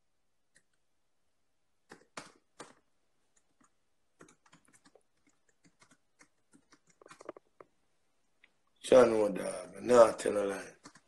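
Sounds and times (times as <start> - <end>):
clicks and taps near microphone: 1.9 - 7.8.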